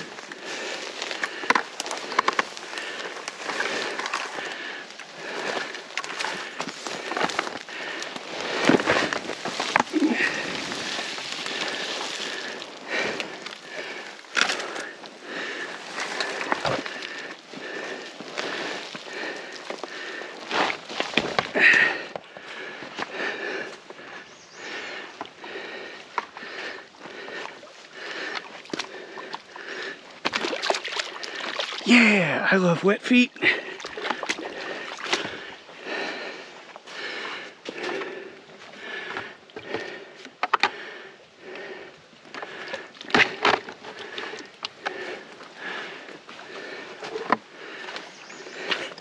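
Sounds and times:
sticks snapping underfoot: 0:00.0 - 0:15.0
footsteps through wet brush: 0:00.0 - 0:32.4.

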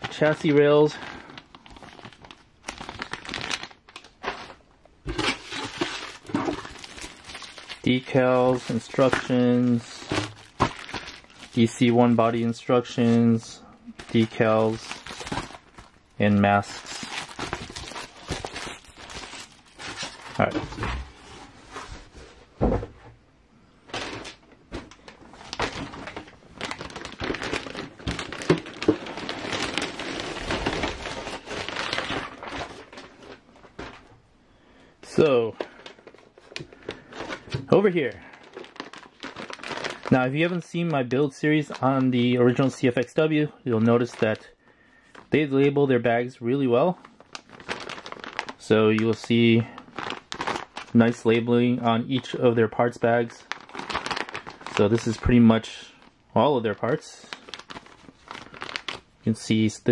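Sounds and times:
plastic bag crinkling: 0:00.0 - 0:21.3, 0:23.9 - 0:34.1, 0:35.1 - 0:43.1, 0:46.8 - 0:59.7
paper rustling in a box: 0:01.3 - 0:11.7, 0:25.3 - 0:34.1, 0:38.4 - 0:40.2, 0:47.3 - 0:49.1, 0:49.9 - 0:51.0, 0:53.5 - 0:55.4, 0:57.3 - 0:59.0
thump: 0:22.6 - 0:23.0.

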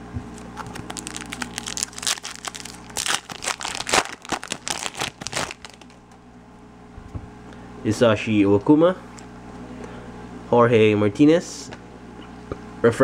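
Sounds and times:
foil wrapper crinkling and tearing: 0:00.3 - 0:06.0.

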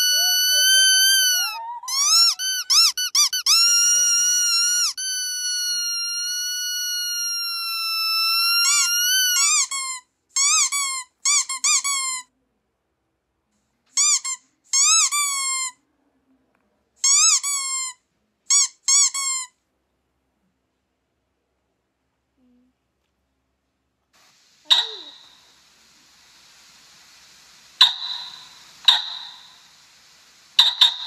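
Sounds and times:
squeaky toy squeaking: 0:00.0 - 0:12.3, 0:13.9 - 0:15.8, 0:17.0 - 0:19.6, 0:24.7 - 0:25.2, 0:30.6 - 0:31.0.

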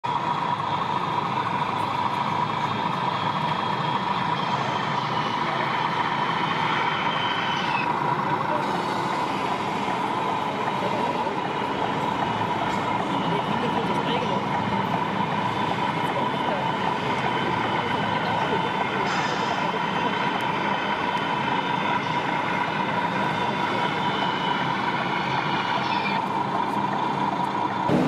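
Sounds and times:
model trucks driving: 0:00.0 - 0:28.0
crowded hall din: 0:07.1 - 0:28.0.

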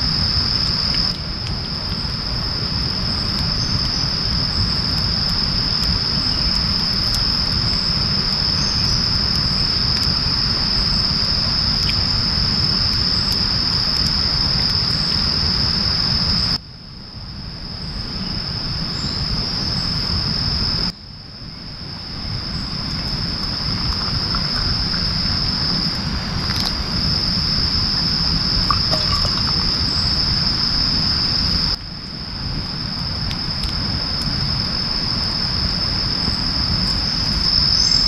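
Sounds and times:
steady rain: 0:00.0 - 0:16.6, 0:21.6 - 0:38.0
insects chirring: 0:00.0 - 0:38.0
deep low rumble: 0:22.2 - 0:31.8.

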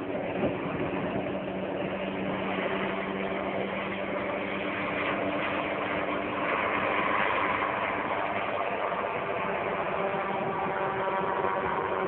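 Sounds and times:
helicopter flying overhead: 0:00.0 - 0:12.0.

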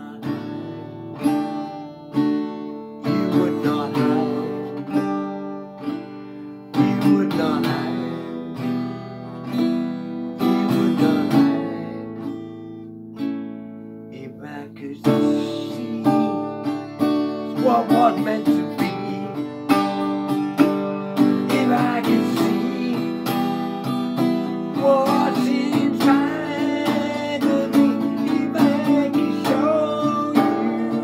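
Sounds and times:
acoustic guitar strummed chords: 0:00.0 - 0:31.0.

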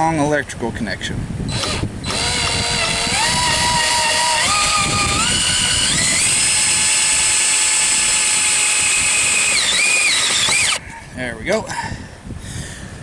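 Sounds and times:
power drill whining: 0:01.5 - 0:10.8.

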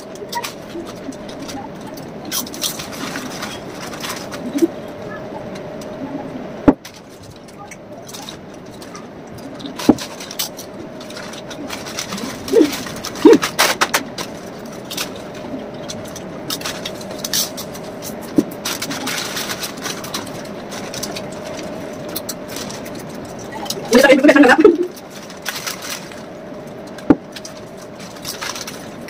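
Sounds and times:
foil bags crinkling: 0:00.0 - 0:06.0, 0:06.8 - 0:29.0
faint steady hum: 0:00.0 - 0:29.0
chips crunching: 0:06.9 - 0:29.0.

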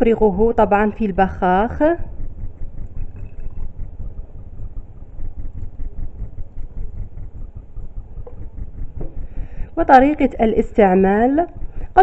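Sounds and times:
low uneven rumbling: 0:00.0 - 0:12.0.

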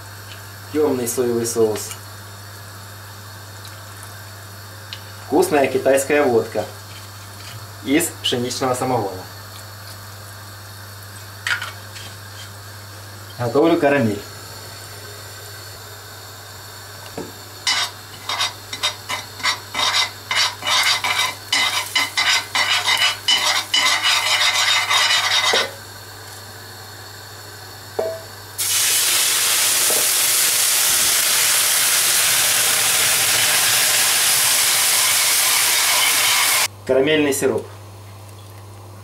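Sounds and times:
caramel sizzling hiss: 0:17.6 - 0:26.0, 0:28.6 - 0:36.7
metal utensil scraping frying pan: 0:17.7 - 0:25.8.

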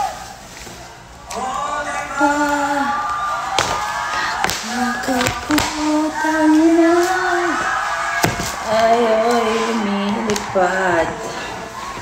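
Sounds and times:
high voice singing: 0:04.6 - 0:07.8.

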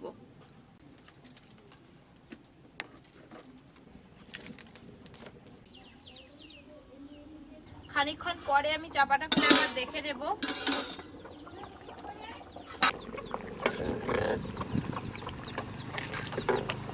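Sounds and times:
wood fire crackling: 0:03.7 - 0:05.4
bird chirping: 0:05.5 - 0:08.2, 0:11.0 - 0:16.9
dove cooing: 0:11.3 - 0:16.6.

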